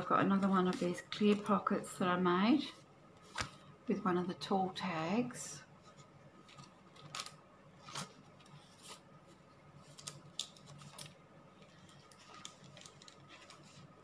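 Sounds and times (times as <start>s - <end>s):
paper rustling: 5.9s - 14.0s.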